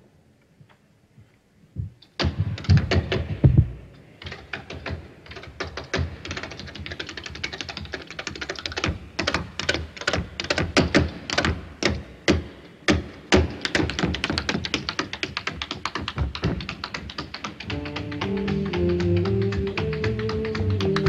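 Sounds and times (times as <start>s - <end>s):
tap shoes tapping on stage: 2.2s - 21.0s.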